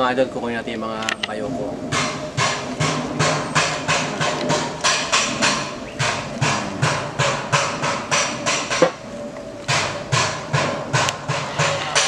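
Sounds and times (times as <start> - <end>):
music with percussive beat: 1.9 - 9.0, 9.7 - 12.0.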